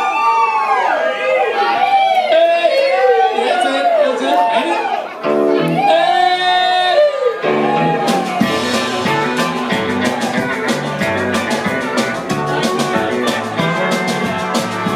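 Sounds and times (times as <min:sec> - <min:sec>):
country band playing: 0:05.0 - 0:14.9
drums steady beat: 0:07.9 - 0:14.9.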